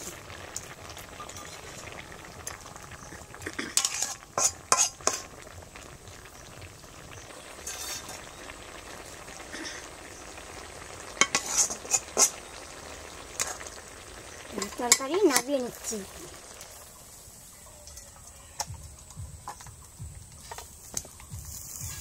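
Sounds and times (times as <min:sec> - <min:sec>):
metal spatula scraping pan: 0:03.6 - 0:05.3, 0:07.5 - 0:08.3, 0:11.2 - 0:12.4.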